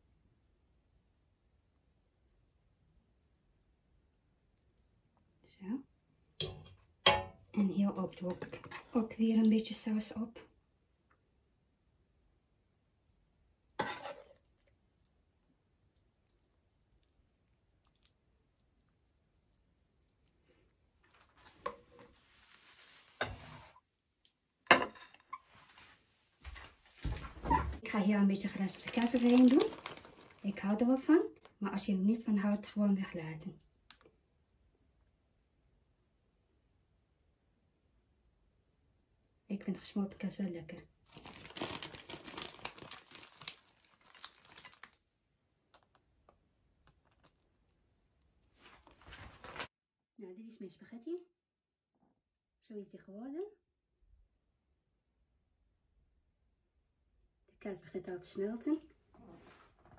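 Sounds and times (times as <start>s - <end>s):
plastic bag crinkling: 28.4s - 30.8s, 41.1s - 45.0s.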